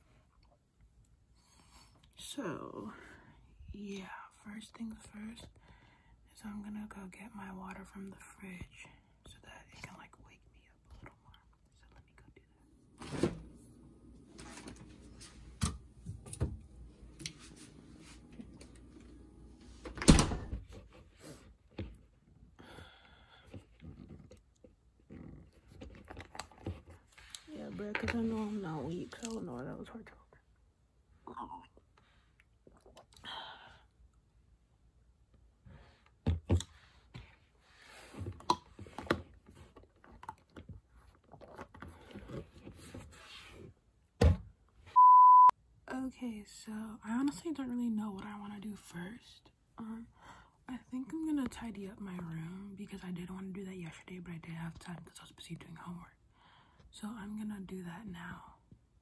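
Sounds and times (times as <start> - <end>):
fridge door thumping shut: 20.0 - 20.6
person gulping water: 32.4 - 33.4.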